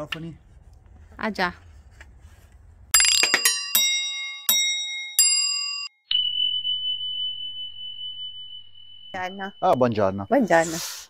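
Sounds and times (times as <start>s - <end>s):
bell dings: 3.0s - 10.6s
bright chimes: 3.0s - 11.0s
steady high tone: 3.0s - 11.0s.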